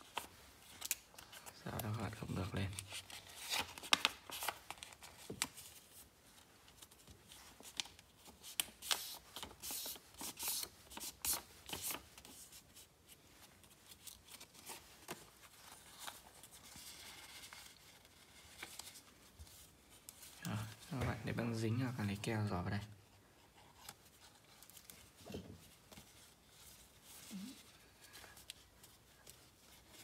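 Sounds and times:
paper rustling and crackling: 0:00.0 - 0:21.4.

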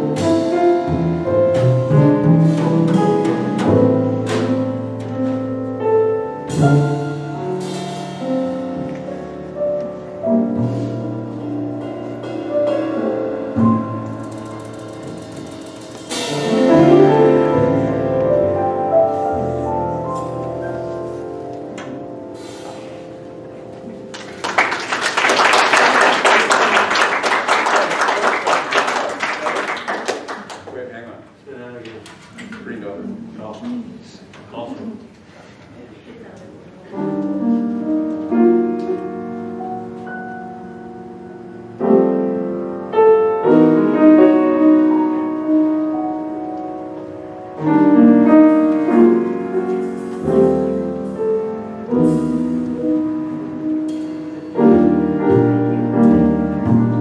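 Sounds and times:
double bass notes: 0:00.0 - 0:24.1, 0:37.0 - 0:57.0
grand piano chords: 0:00.0 - 0:31.3, 0:36.5 - 0:57.0
small audience applauding: 0:24.1 - 0:31.2.

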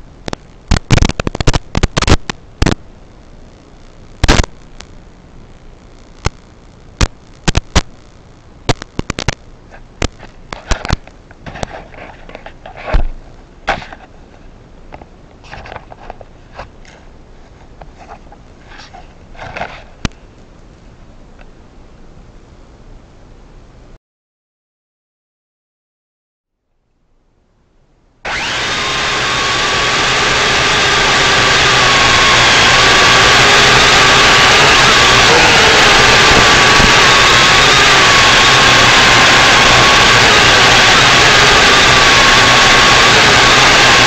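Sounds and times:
sharp clicks and crackles: 0:00.0 - 0:02.8, 0:04.2 - 0:05.0, 0:06.1 - 0:13.1.

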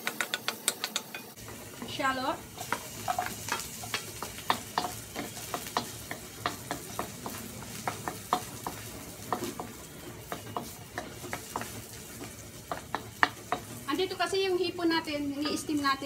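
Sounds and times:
spatula scraping a wok: 0:00.0 - 0:14.2
light sizzle: 0:00.0 - 0:16.0.

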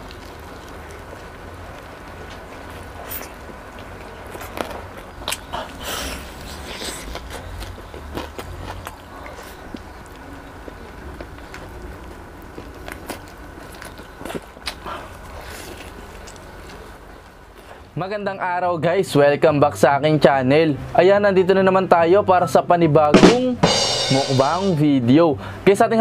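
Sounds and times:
person crunching fried chicken: 0:00.0 - 0:17.7.

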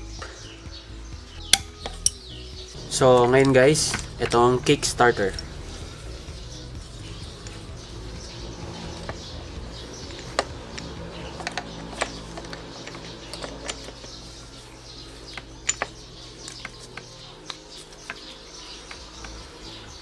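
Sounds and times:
low steady hum: 0:01.5 - 0:20.0
metal clicks and taps: 0:10.0 - 0:14.2, 0:15.3 - 0:19.4.

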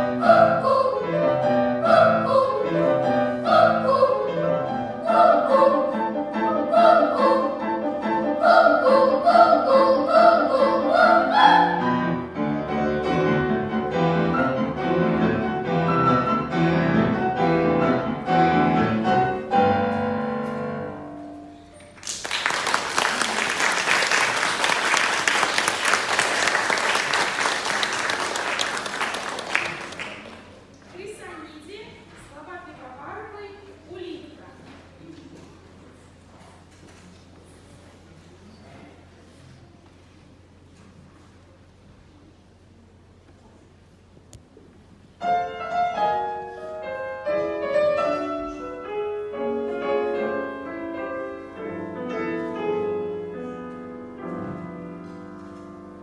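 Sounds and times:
children's choir singing: 0:00.0 - 0:12.4
piano chords: 0:00.0 - 0:22.0, 0:45.2 - 0:56.0
audience applause: 0:22.0 - 0:30.6.

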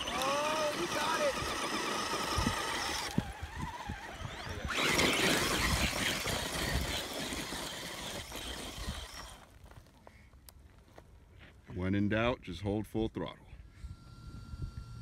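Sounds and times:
rc car drivetrain whine: 0:00.0 - 0:09.7, 0:13.7 - 0:15.0
tires spinning throwing gravel: 0:00.0 - 0:10.0.

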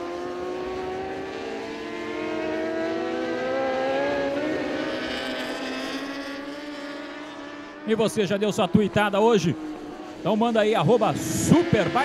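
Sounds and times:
motorbikes racing at high revs: 0:00.0 - 0:12.0.

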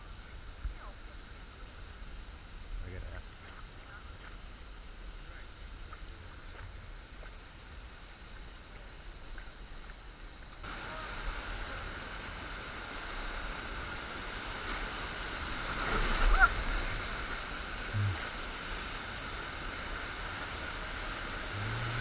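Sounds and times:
river rapids rushing: 0:10.7 - 0:22.0.

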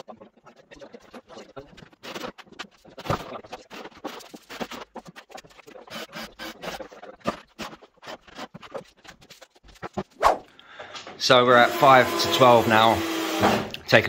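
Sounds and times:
knocks and scrapes on plywood: 0:01.8 - 0:05.7, 0:06.6 - 0:10.2.

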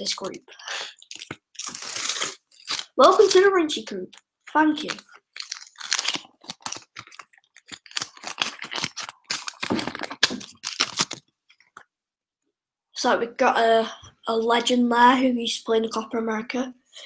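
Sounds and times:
cards clicking and rustling: 0:00.0 - 0:03.5, 0:04.1 - 0:11.7.

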